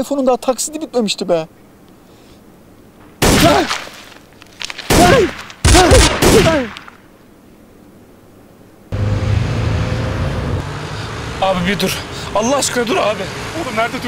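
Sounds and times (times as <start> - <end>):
gunfire bursts: 3.2 - 4.1, 4.8 - 7.0
men yelling: 4.9 - 6.8.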